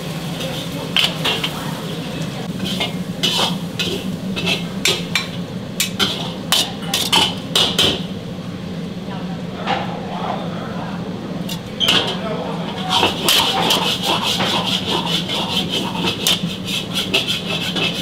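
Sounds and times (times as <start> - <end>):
steady low hum: 0.0 - 18.0
ladle clanking against wok: 2.4 - 8.2, 11.5 - 18.0.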